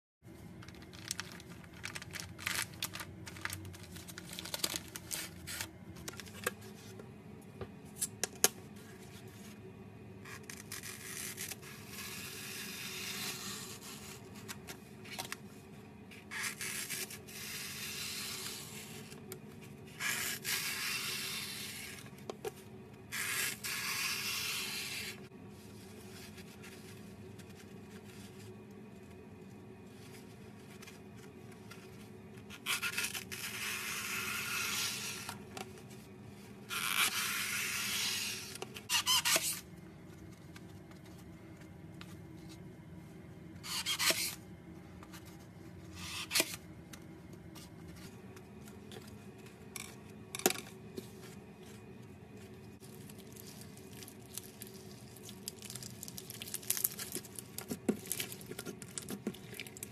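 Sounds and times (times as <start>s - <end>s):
plastic wrapper crinkling: 0.5s - 6.5s, 52.8s - 59.9s.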